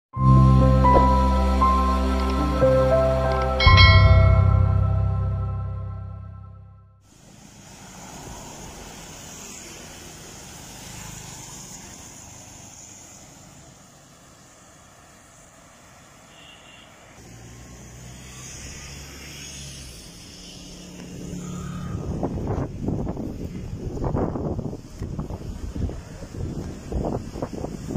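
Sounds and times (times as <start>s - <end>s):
cars and motorbikes passing: 0.2s - 6.5s, 7.1s - 27.9s
tyre hiss on wet road: 7.0s - 27.9s.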